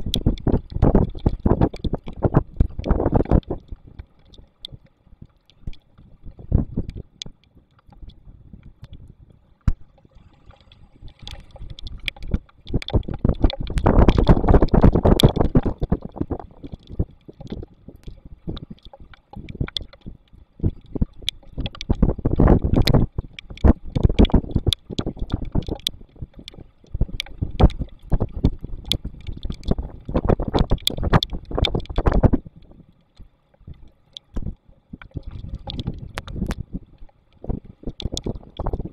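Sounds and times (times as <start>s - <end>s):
rain ticking on camera housing: 0.0s - 38.9s
wind buffeting microphone: 11.6s - 18.5s, 20.6s - 32.8s.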